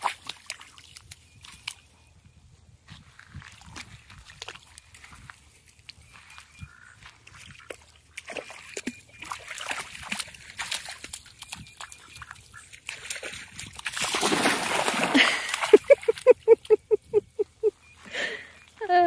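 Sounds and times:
dog splashing through water: 0:07.2 - 0:16.6.

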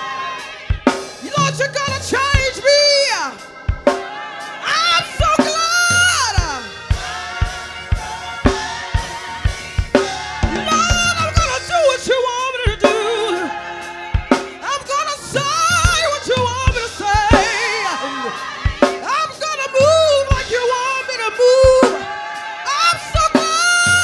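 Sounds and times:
drum kit and bass: 0:00.7 - 0:02.9, 0:05.3 - 0:13.5, 0:14.2 - 0:17.8, 0:19.8 - 0:20.8
person singing with vibrato: 0:10.1 - 0:22.1.

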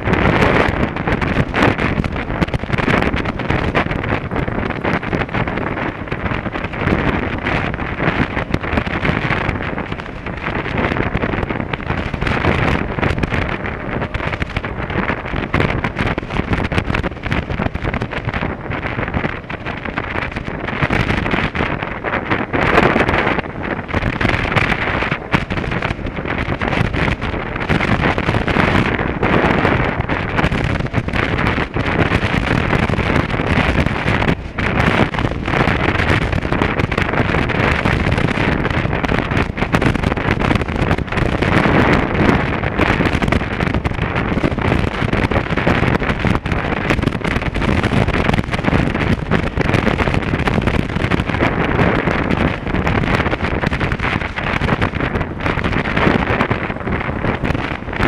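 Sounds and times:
motorcycle engine: 0:00.0 - 0:58.0
road noise: 0:00.0 - 0:58.0
wind buffeting microphone: 0:00.0 - 0:58.0.

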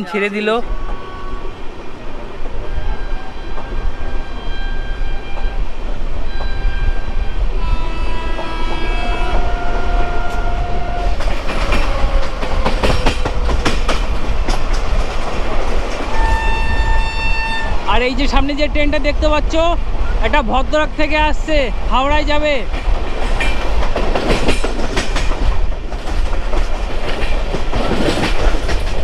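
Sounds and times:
train horn: 0:00.6 - 0:01.7, 0:02.6 - 0:13.5, 0:16.1 - 0:17.8
train wheels rumbling on rails: 0:00.6 - 0:29.0
wheels clicking over rail joints: 0:08.3 - 0:16.6, 0:22.6 - 0:29.0.

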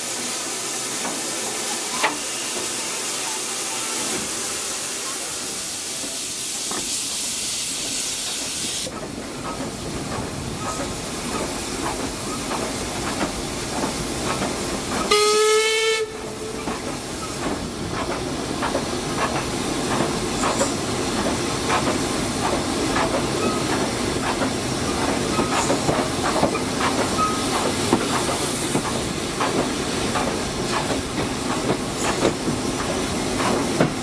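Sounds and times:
loud hiss of steam: 0:00.0 - 0:34.0
steam locomotive exhaust beats: 0:00.0 - 0:34.0
steam whistle blast: 0:15.1 - 0:16.6.

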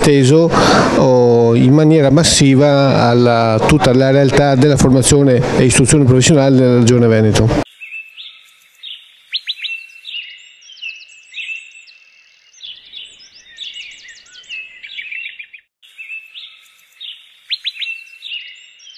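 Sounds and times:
birds chirping and trilling: 0:07.6 - 0:18.9.

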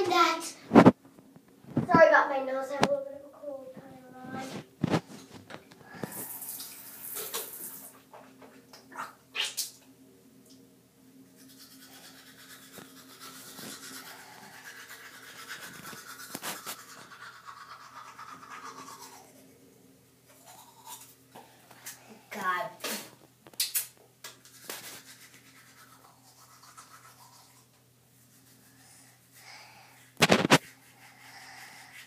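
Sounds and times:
toothbrush scrubbing teeth: 0:11.3 - 0:19.7, 0:20.3 - 0:22.0, 0:23.6 - 0:32.0.

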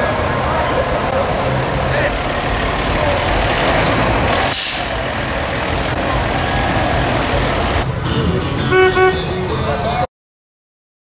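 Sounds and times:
diesel truck engine rumbling: 0:00.0 - 0:10.1
air brakes hissing: 0:03.8 - 0:07.8.

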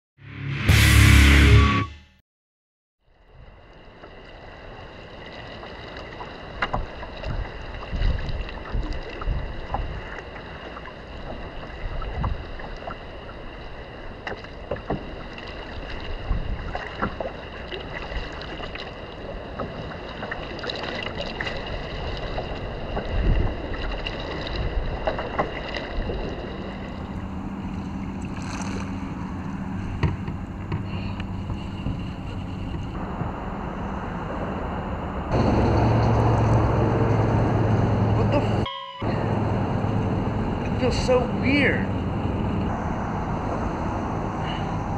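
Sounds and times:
water slapping against hull: 0:03.8 - 0:33.6
wind buffeting microphone: 0:06.7 - 0:10.4, 0:11.1 - 0:13.2, 0:15.8 - 0:16.9, 0:21.6 - 0:38.6
low steady hum: 0:25.9 - 0:44.9.

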